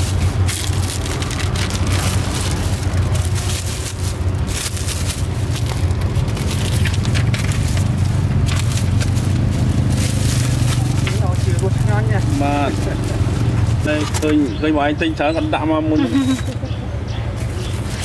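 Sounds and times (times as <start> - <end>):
plastic gloves and bags rustling: 0.0 - 14.4
road traffic rumble: 0.0 - 18.0.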